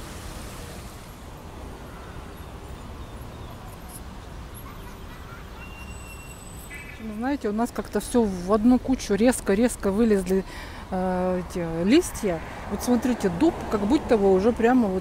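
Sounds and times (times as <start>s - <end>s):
faint high bird chirps: 1.8s - 7.2s.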